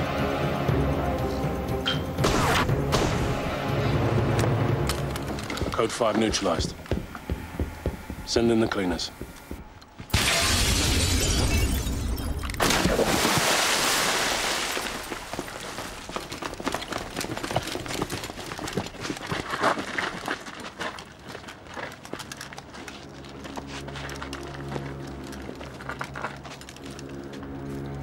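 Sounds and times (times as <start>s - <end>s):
low music tones: 0.0s - 10.0s, 22.9s - 28.0s
window glass shattering: 10.1s - 13.3s.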